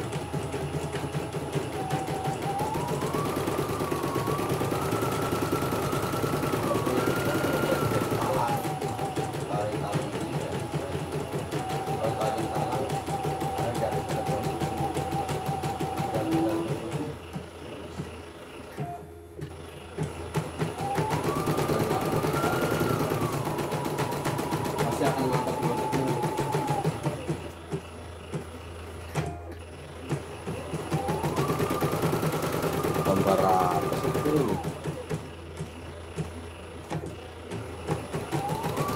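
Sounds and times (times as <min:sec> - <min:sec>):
embroidery machine stitching: 0:00.0 - 0:38.9
motor whine: 0:00.0 - 0:38.9.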